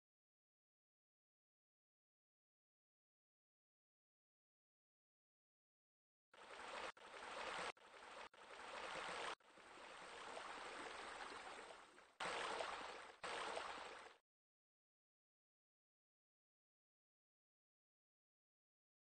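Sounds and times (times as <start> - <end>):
running water hiss: 6.4 - 14.2.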